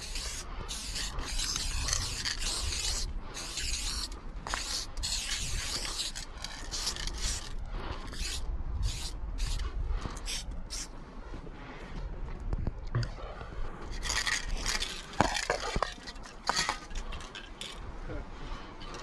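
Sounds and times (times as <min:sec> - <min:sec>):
spray paint can hissing: 0:00.0 - 0:07.5, 0:08.1 - 0:09.6, 0:10.2 - 0:10.9.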